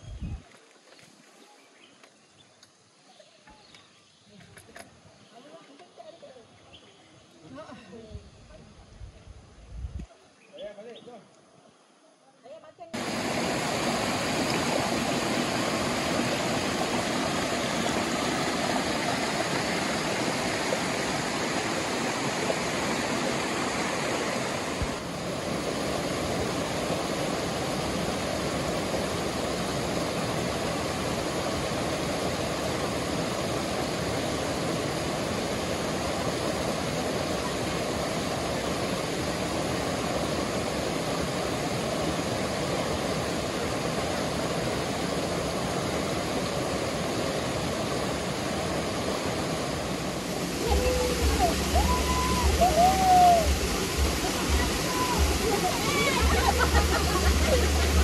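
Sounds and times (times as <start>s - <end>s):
water rushing over rocks: 13.0s - 58.0s.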